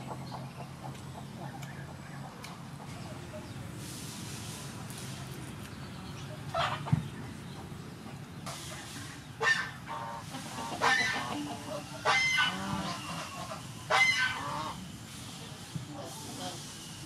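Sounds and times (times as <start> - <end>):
poultry calling: 9.0 - 14.9.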